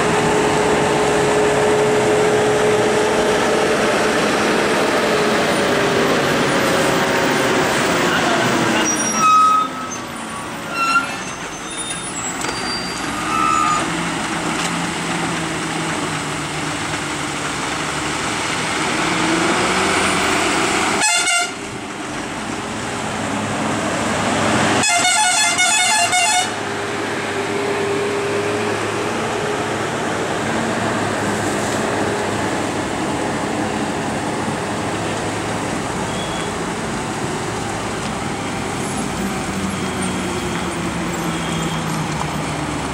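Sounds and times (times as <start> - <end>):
truck diesel engines under load: 0.0 - 42.9
pulsing multi-tone horn blast: 21.0 - 21.6, 24.8 - 26.6.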